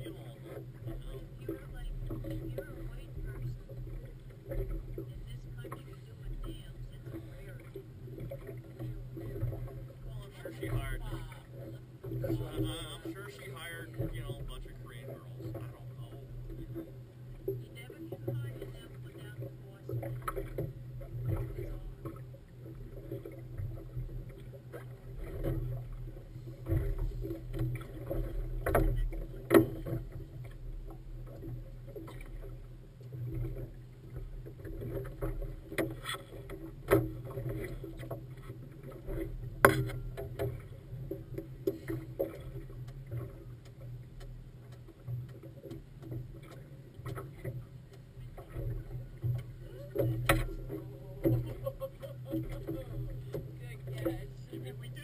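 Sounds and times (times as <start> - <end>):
motorboat engine running: 0.0 - 55.0
water washing along hull: 0.0 - 55.0.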